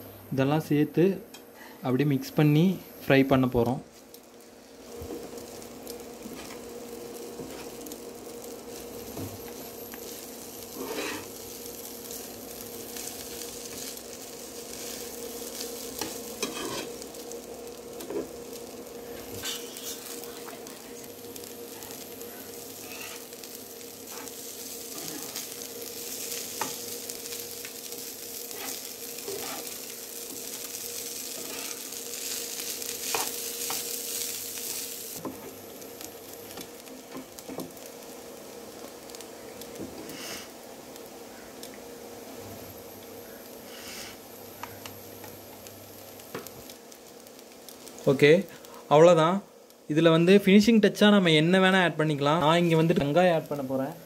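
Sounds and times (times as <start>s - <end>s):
rice sizzling in a pan: 0.0s - 54.0s
spatulas scraping a pan: 10.6s - 11.4s, 16.0s - 17.0s, 19.1s - 20.1s, 22.8s - 23.3s, 28.5s - 29.8s, 31.3s - 31.9s, 33.0s - 33.8s.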